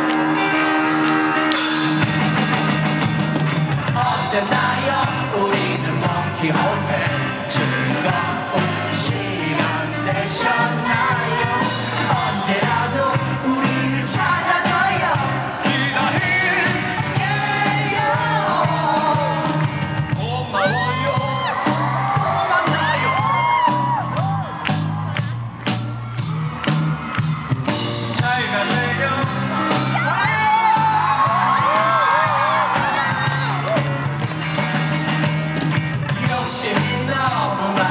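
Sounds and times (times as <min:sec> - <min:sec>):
crowd whooping and shouting: 0:00.0 - 0:05.5, 0:06.2 - 0:37.9
live rock band playing: 0:00.0 - 0:37.9
man singing into microphone: 0:03.9 - 0:21.5, 0:36.2 - 0:37.9.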